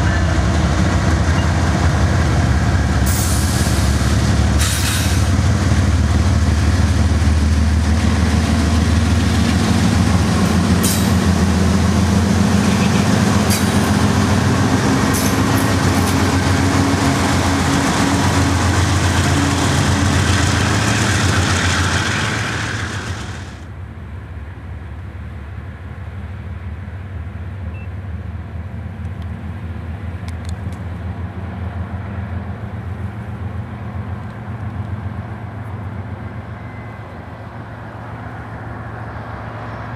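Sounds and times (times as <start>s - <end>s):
train wheels rolling on rails: 0.0s - 23.8s
diesel locomotive engine drone: 0.0s - 39.9s
distant train rumble: 0.0s - 39.9s.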